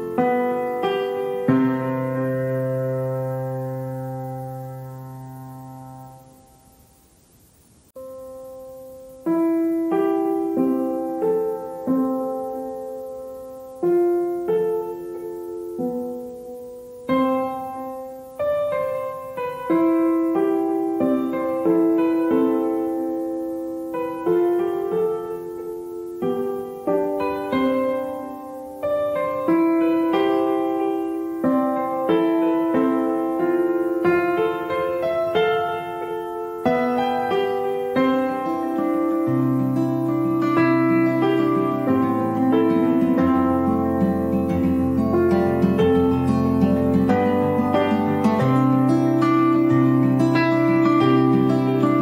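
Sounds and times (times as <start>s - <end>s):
slow piano music: 0.0s - 7.0s, 7.9s - 52.0s.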